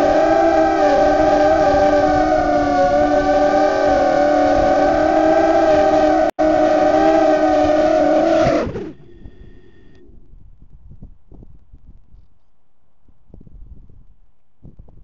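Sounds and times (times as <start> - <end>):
quadcopter motors whining: 0.0 - 10.1.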